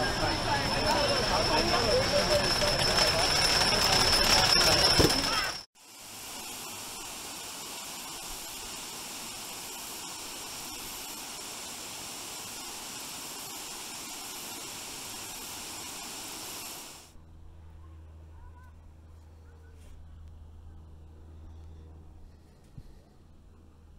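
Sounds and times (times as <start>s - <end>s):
faint low hum: 17.2s - 23.9s.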